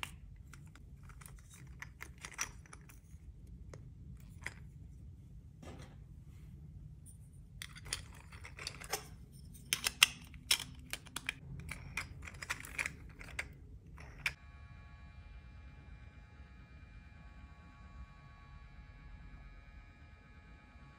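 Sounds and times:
plastic parts clicking and clacking: 0:00.0 - 0:04.7, 0:07.6 - 0:14.4.

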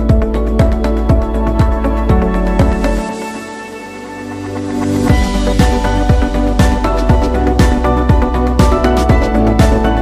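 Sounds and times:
kick drum beat: 0:00.0 - 0:03.0, 0:05.1 - 0:10.0.

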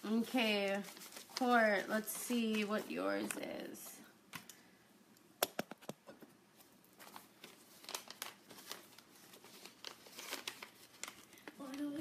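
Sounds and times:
paper rustling and crinkling: 0:00.0 - 0:03.5, 0:06.5 - 0:12.0.

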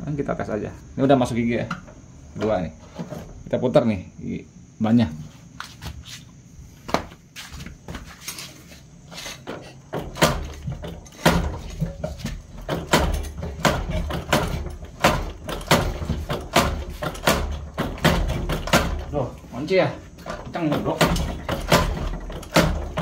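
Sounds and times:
motorcycle drivetrain clunks: 0:09.5 - 0:19.2, 0:20.2 - 0:23.0.

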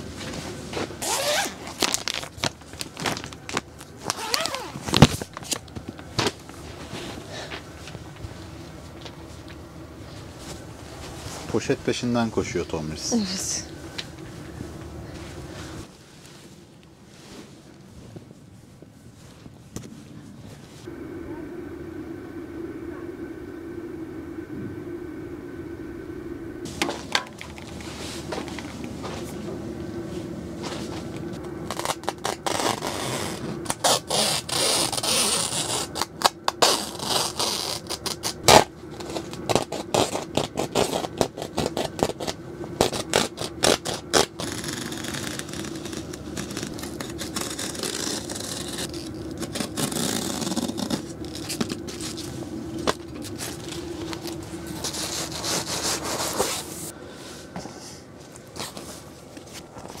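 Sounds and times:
tent fabric rustling: 0:00.0 - 0:05.6, 0:14.3 - 0:20.9
steady low hum: 0:00.0 - 1:00.0.

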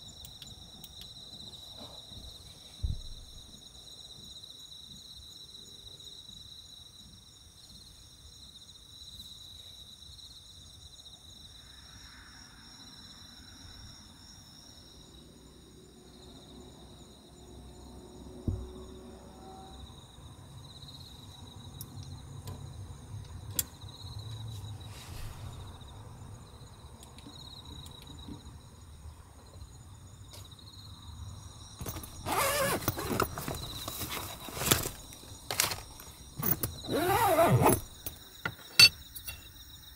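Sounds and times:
insects trilling: 0:00.0 - 0:39.9
soft thump: 0:02.8 - 0:03.3, 0:18.5 - 0:18.7
plastic bag rustling: 0:31.9 - 0:36.2.

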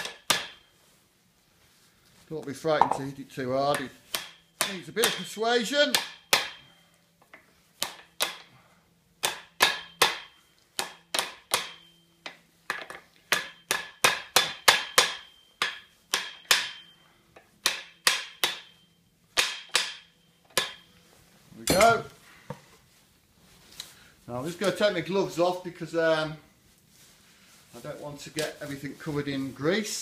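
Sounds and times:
hammer striking metal: 0:02.8 - 0:03.1, 0:04.1 - 0:05.3, 0:05.9 - 0:06.7, 0:09.2 - 0:12.0, 0:13.3 - 0:17.0, 0:17.6 - 0:20.9, 0:21.6 - 0:22.0.

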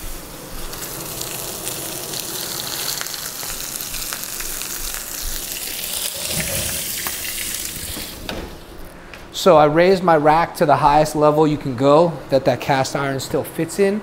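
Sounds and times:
steaks sizzling in a skillet: 0:00.0 - 0:08.2
fat crackling spatter: 0:00.2 - 0:08.9.

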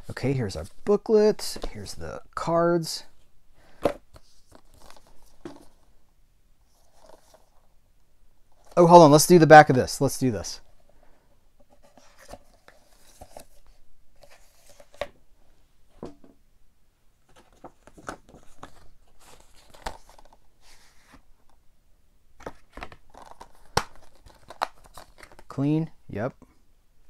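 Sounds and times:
cardboard and plastic case rustling: 0:03.8 - 0:05.9, 0:06.8 - 0:07.6, 0:17.2 - 0:21.2.

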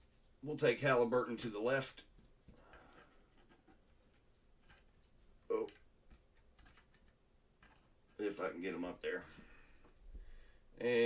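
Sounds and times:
trading cards clicking and scratching: 0:02.6 - 0:08.3.

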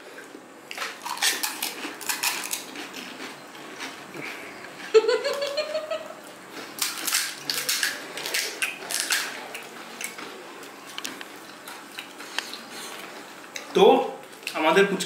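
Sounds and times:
crisp fried shells crackling: 0:00.7 - 0:03.9, 0:06.6 - 0:10.2.

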